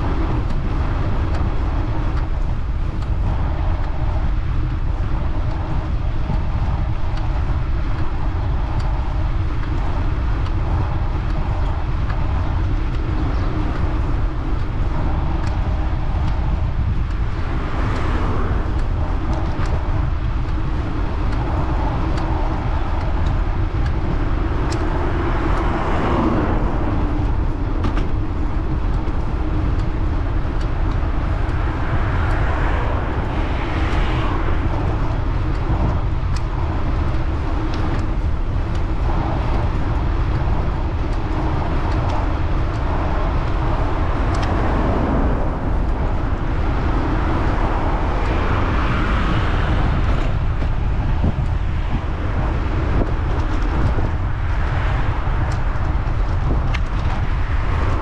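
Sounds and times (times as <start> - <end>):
traffic noise: 0.0 - 58.0
wind rumble on microphone: 0.0 - 58.0
vehicle passing: 24.8 - 28.2, 42.0 - 52.6.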